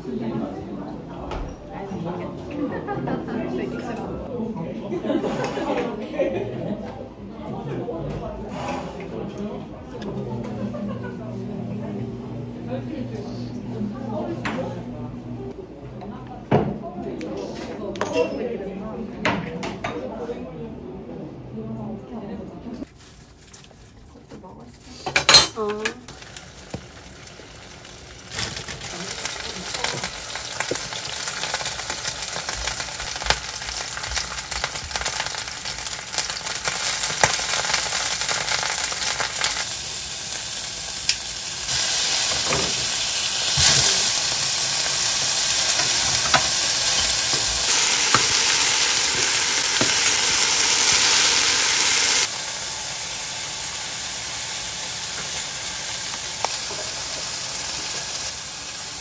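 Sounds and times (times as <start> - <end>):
chicken sizzling in a pan: 26.0 - 59.0.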